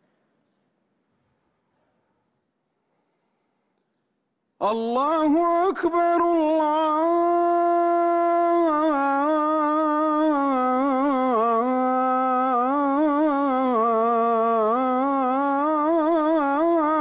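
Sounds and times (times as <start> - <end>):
man singing call to prayer: 4.6 - 17.0.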